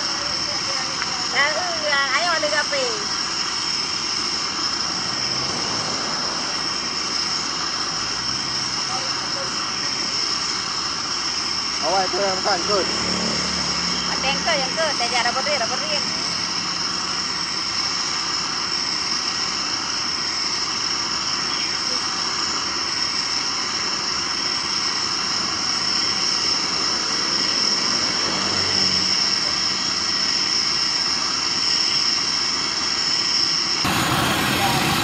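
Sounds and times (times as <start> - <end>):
gas burner roaring: 0.0 - 35.0
high-pitched whine: 0.0 - 35.0.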